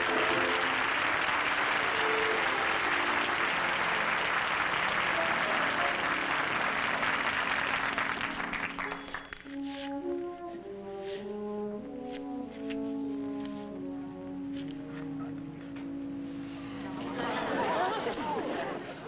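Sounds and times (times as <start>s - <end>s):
audience applauding: 0.0s - 9.6s
orchestra music: 0.0s - 19.0s.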